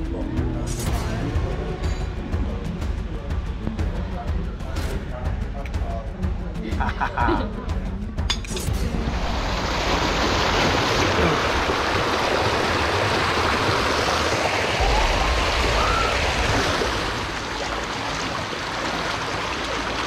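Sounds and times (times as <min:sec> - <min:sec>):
low rumble: 0:00.0 - 0:19.9
stream splashing over rocks: 0:08.9 - 0:20.0.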